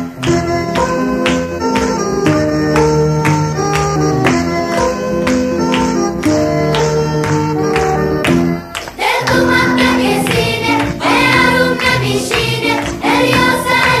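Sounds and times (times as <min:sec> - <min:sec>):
background music: 0:00.0 - 0:14.0
song with singing: 0:08.9 - 0:14.0.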